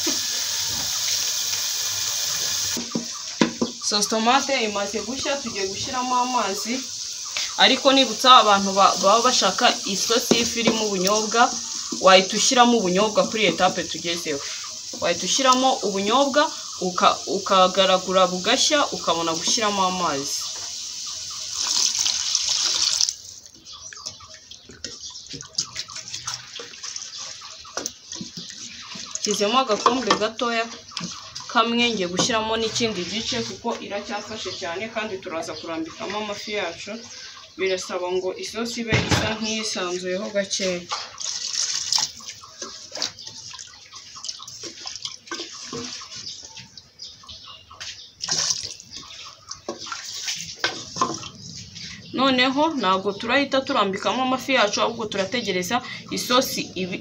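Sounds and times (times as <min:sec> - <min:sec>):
water splashing into pot: 0:00.0 - 0:33.6, 0:38.9 - 0:46.5, 0:48.2 - 0:51.4
sauce sloshing in a pot: 0:20.6 - 0:34.2, 0:40.7 - 0:47.2, 0:47.8 - 0:52.0
wooden spoon scraping pot: 0:26.6 - 0:34.0.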